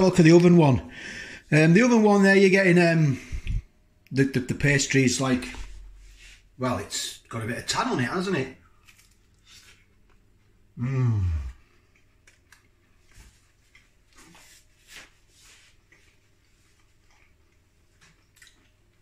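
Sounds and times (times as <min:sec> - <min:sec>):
man humming mmm: 0:10.8 - 0:11.7
quiet chewing with mouth clicks: 0:11.6 - 0:19.0.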